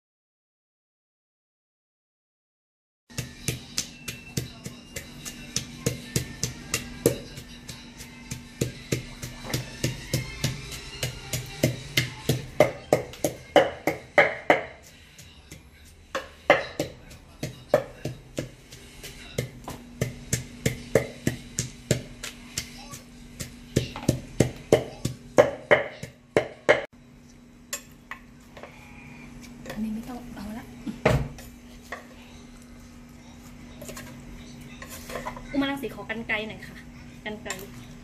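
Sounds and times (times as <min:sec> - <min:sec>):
pestle pounding in a mortar: 0:03.1 - 0:26.9.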